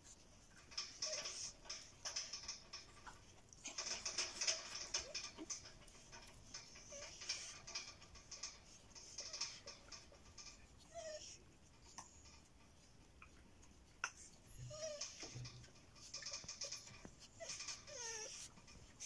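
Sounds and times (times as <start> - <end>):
puppy squeaks: 0.9 - 2.6, 10.5 - 12.2, 14.5 - 18.6.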